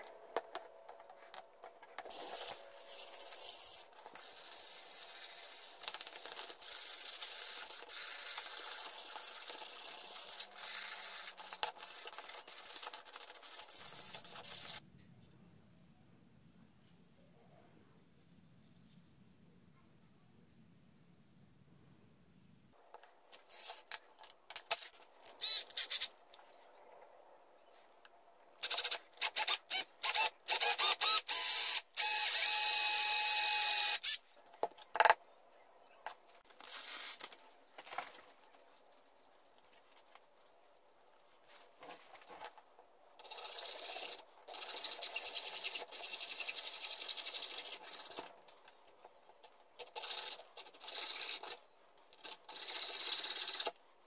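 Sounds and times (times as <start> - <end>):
cordless drill boring into wood: 25.4 - 26.1, 28.6 - 34.2
scrapes and handling noises: 36.0 - 43.0.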